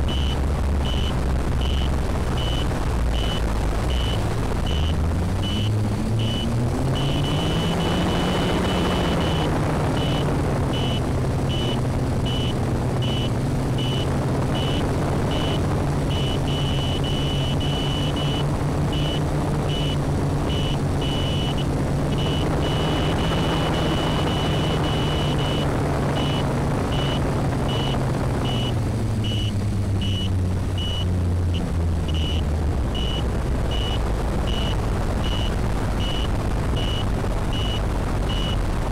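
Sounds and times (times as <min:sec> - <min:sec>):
high-pitched electronic beeper: 0:00.0 - 0:21.6, 0:22.2 - 0:31.1, 0:33.0 - 0:38.6
drone motors humming: 0:00.0 - 0:38.6.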